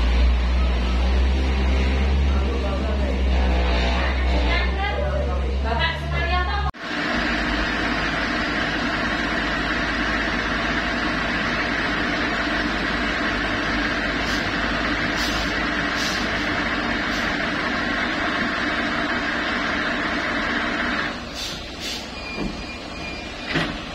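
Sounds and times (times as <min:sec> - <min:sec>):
diesel truck engines running: 0:00.0 - 0:23.9
faint short hisses: 0:21.3 - 0:22.2.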